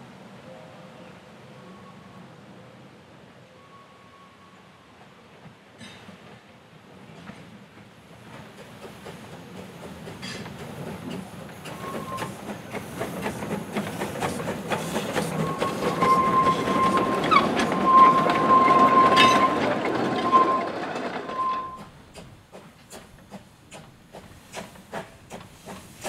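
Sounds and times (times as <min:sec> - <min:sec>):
wheels clicking over rail joints: 0:07.1 - 0:26.0
wheel flanges squealing: 0:11.6 - 0:12.4, 0:14.2 - 0:21.9.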